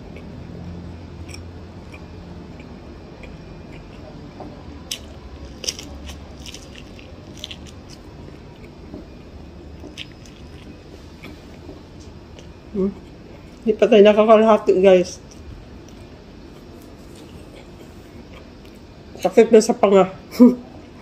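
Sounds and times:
chewing corn kernels: 1.2s - 13.7s, 15.2s - 18.8s
crisp crunches and clicks: 4.9s - 8.8s, 9.8s - 11.4s.

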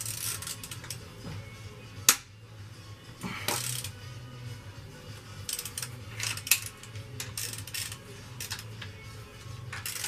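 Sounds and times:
hand ratchet clicking: 0.0s - 1.0s, 3.5s - 4.0s, 5.5s - 8.9s, 9.7s - 10.0s.

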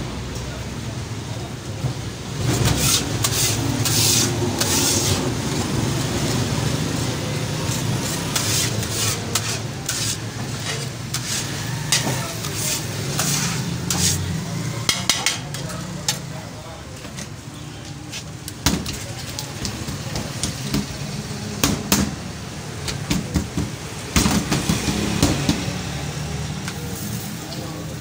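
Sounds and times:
metal scraper rasping on griddle: 2.5s - 5.3s, 7.7s - 14.3s
oil sizzling: 2.5s - 14.6s.

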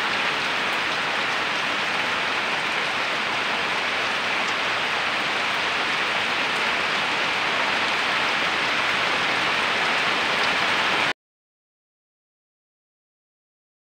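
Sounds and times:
heavy rain pouring: 0.0s - 11.1s.

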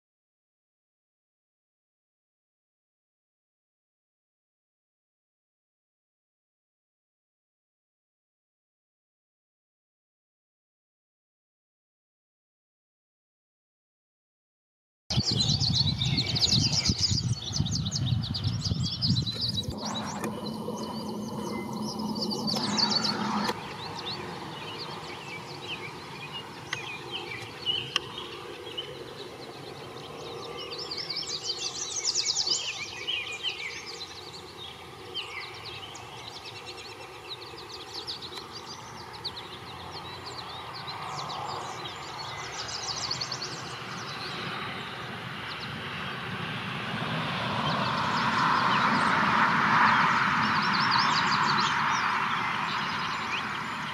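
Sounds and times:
songbirds chirping and singing: 15.1s - 45.9s, 49.8s - 53.9s
low background rumble: 17.2s - 30.4s.

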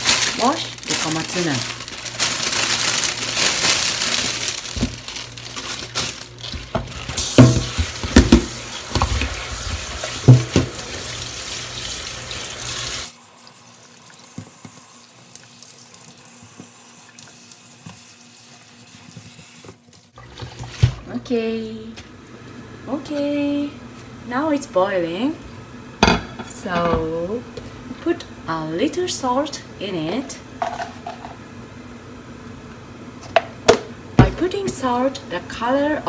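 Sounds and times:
knocks of colander in sink: 6.7s - 10.8s
tap water running into sink: 6.8s - 21.0s.

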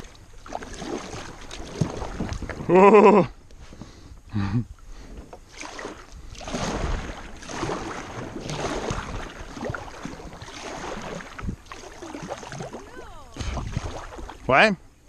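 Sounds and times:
kayak paddle dipping into water: 0.0s - 4.0s, 4.8s - 14.6s
water dripping from paddle: 7.2s - 14.5s.

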